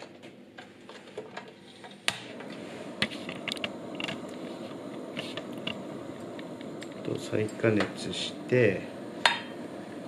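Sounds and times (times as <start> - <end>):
gas flame rushing: 2.0 - 10.0.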